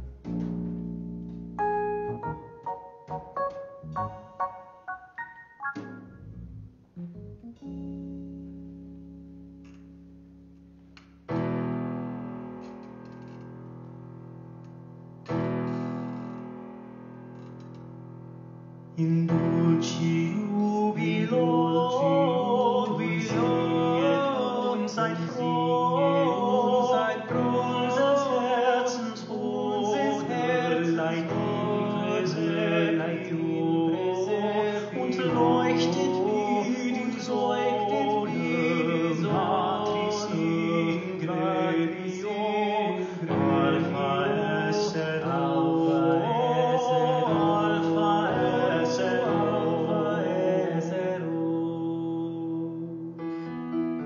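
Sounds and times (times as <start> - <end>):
keyboard accompaniment: 0.0 - 50.4, 52.9 - 54.0
man singing: 19.0 - 53.0.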